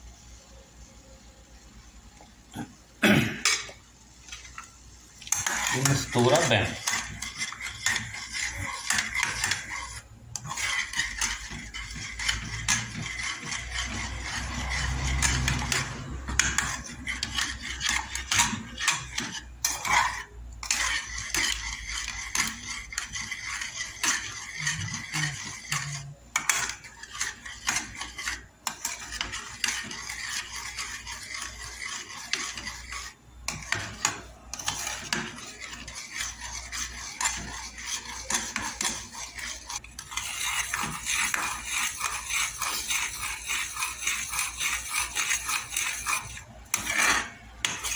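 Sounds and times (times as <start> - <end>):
spoon scraping metal pot: 3.4 - 47.9.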